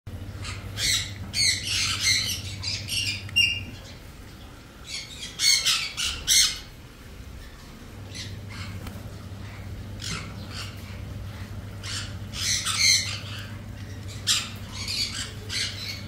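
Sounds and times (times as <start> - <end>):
parrots squawking harshly: 4.9 - 6.7, 9.4 - 16.0.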